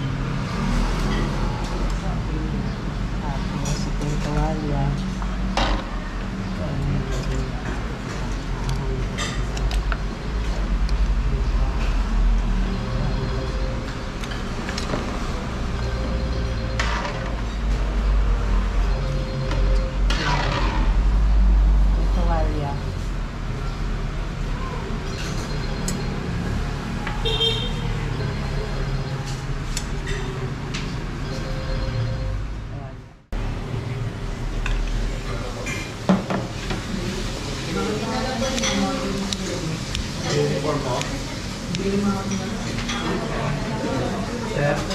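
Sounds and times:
street traffic rumble: 0:00.0 - 0:44.9
vehicle horn toot: 0:27.1 - 0:28.0.

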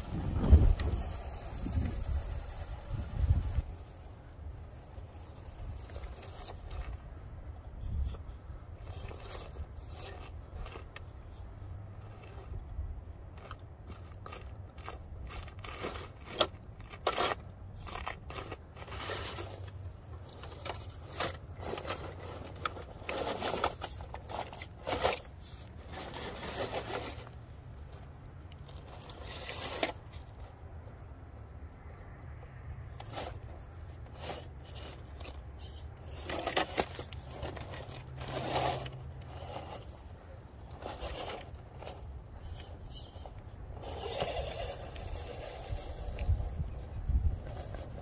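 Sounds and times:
tyres crunching over gravel: 0:07.9 - 0:31.1, 0:32.9 - 0:48.0.

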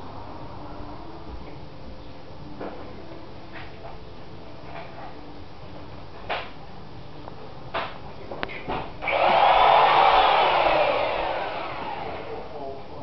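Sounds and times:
electric drill drilling into wall: 0:09.0 - 0:12.6.

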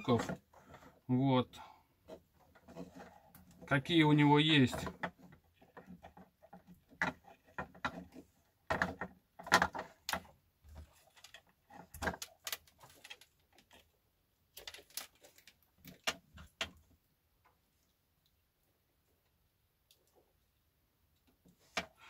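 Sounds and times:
clicks and rustles of handled electronics: 0:02.0 - 0:18.4.

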